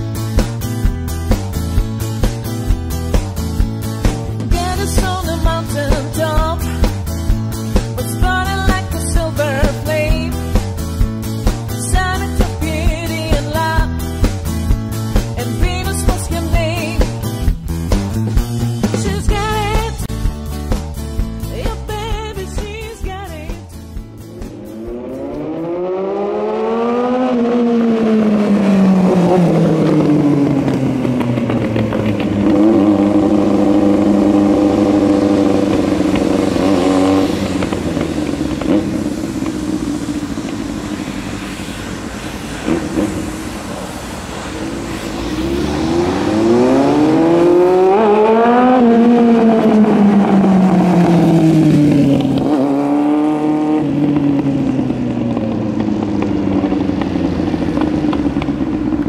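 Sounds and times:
motorcycle engine revving: 0:23.7 - 0:59.0.

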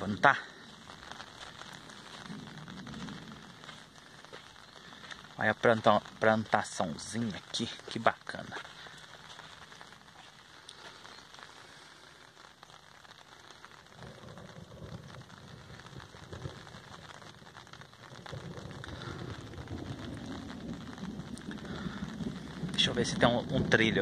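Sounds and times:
low rumbling: 0:00.0 - 0:07.5
light rain on an umbrella: 0:00.0 - 0:24.0.

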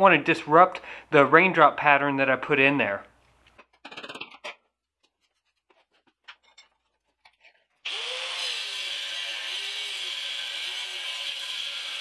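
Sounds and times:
angle grinder cutting steel: 0:07.8 - 0:12.0.

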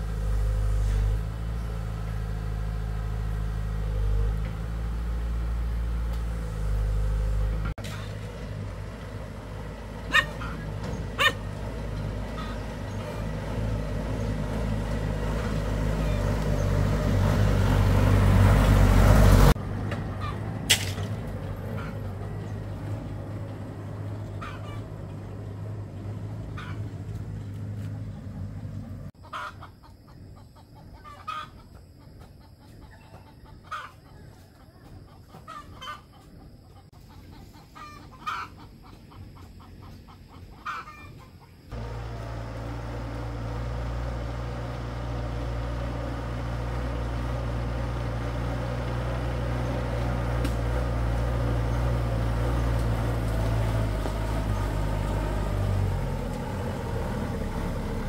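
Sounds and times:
truck engine running: 0:00.0 - 0:29.2, 0:41.7 - 0:58.0
chickens clucking: 0:10.0 - 0:16.6, 0:19.9 - 0:20.5, 0:21.5 - 0:27.5, 0:28.1 - 0:41.8.

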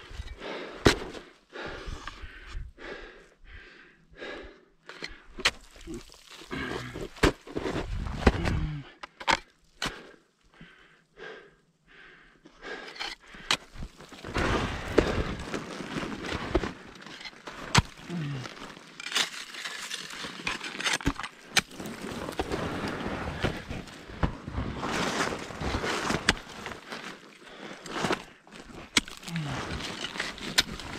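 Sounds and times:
ice crunching and scraping: 0:04.9 - 0:10.1, 0:12.8 - 0:30.9
ice tools striking ice: 0:16.2 - 0:22.6, 0:28.9 - 0:30.9.

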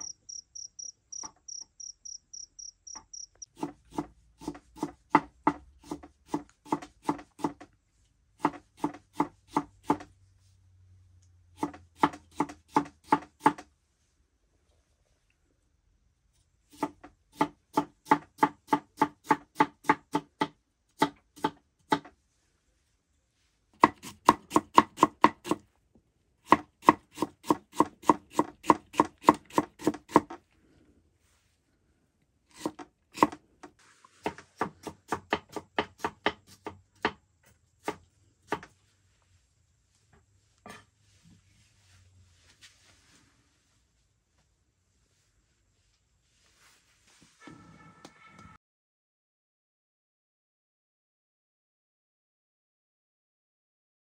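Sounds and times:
knife chopping on cutting board: 0:03.6 - 0:07.7, 0:08.4 - 0:10.1, 0:11.6 - 0:13.6, 0:16.8 - 0:22.1, 0:23.8 - 0:25.6, 0:26.5 - 0:30.4, 0:32.6 - 0:33.4, 0:34.2 - 0:37.2.

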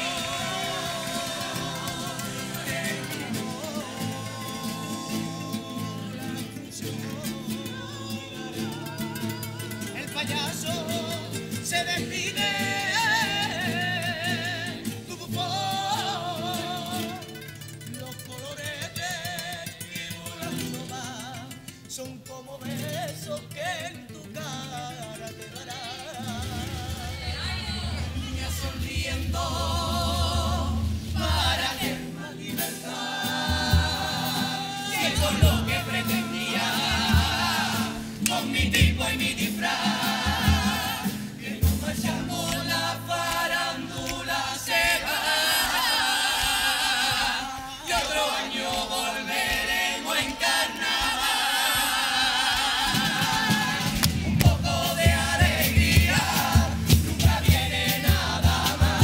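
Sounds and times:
group singing in harmony: 0:00.0 - 0:17.4, 0:25.4 - 0:59.0
guitars: 0:00.0 - 0:59.0
drum beat: 0:26.3 - 0:59.0.

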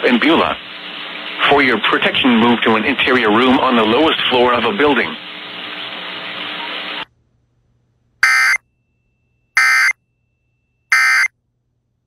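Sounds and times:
broadcast hiss: 0:00.0 - 0:07.1
digital data bursts: 0:08.2 - 0:08.6, 0:09.6 - 0:09.9, 0:10.9 - 0:11.3.

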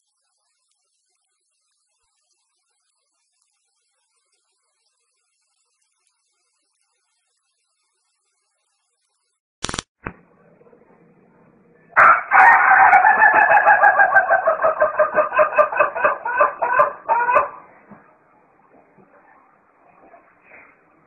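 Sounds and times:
rooster crowing: 0:12.0 - 0:17.7.

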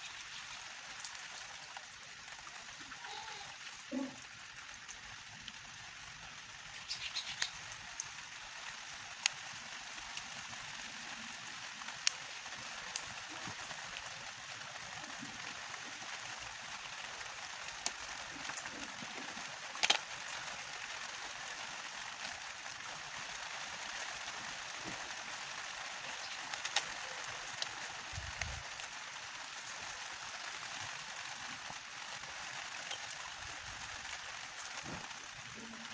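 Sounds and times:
steady hiss: 0:00.0 - 0:35.9
plastic parts clicking: 0:19.8 - 0:20.0.

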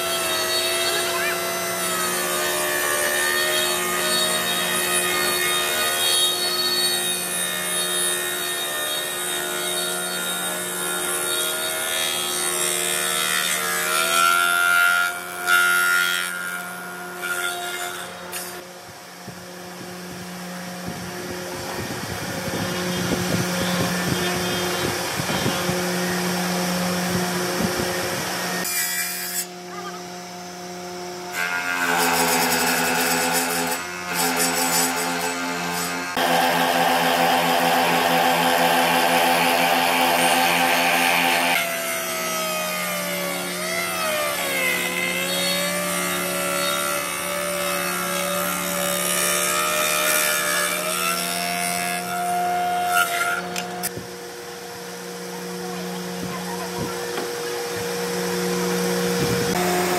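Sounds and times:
cutter head cutting wood: 0:00.0 - 0:18.7, 0:31.2 - 0:54.1, 0:54.8 - 0:59.9
spindle moulder motor hum: 0:00.0 - 0:59.9.

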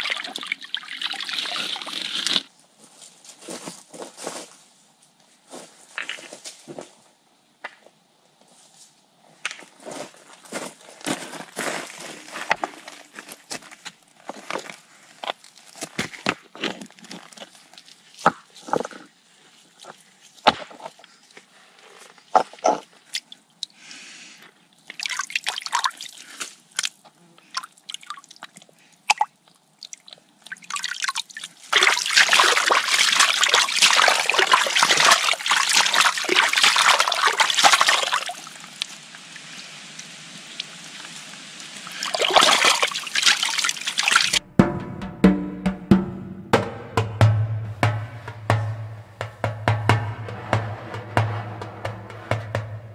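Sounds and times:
hands splashing in muddy water: 0:31.7 - 0:38.3
heavy water splashing and sloshing: 0:31.7 - 0:38.7, 0:41.9 - 0:44.4.

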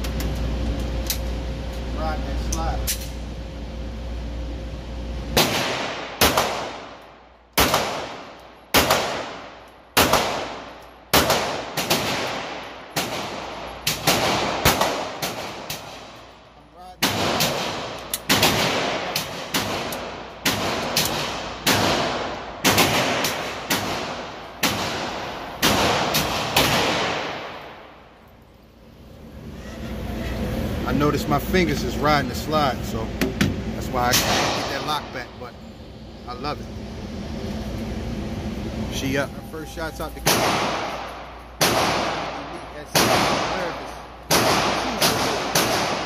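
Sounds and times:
pistol shots echoing indoors: 0:05.3 - 0:16.3, 0:17.0 - 0:28.0, 0:40.2 - 0:46.0.

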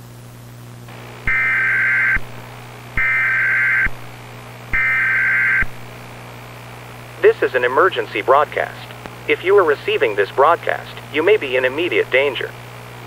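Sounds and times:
steady low hum: 0:00.0 - 0:13.0
digital data tone bursts: 0:01.3 - 0:02.2, 0:04.7 - 0:05.7.

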